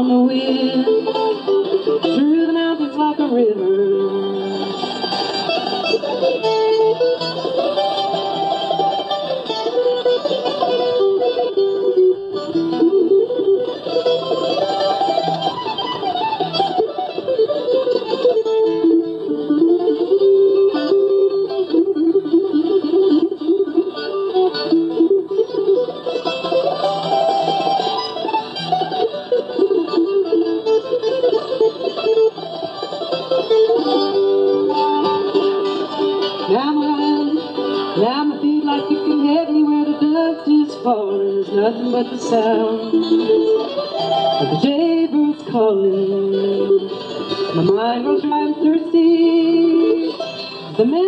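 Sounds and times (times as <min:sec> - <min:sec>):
woman singing: 0:00.0 - 0:04.7, 0:36.4 - 0:43.6, 0:44.3 - 0:51.0
acoustic guitar strumming: 0:00.0 - 0:51.0
mandolin: 0:00.0 - 0:51.0
picked string instrument melody: 0:00.0 - 0:51.0.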